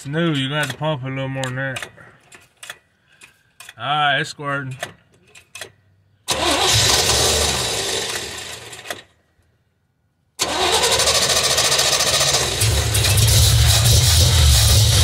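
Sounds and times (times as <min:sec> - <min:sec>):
truck engine starting and running: 0:04.8 - 0:09.4, 0:10.4 - 0:15.0.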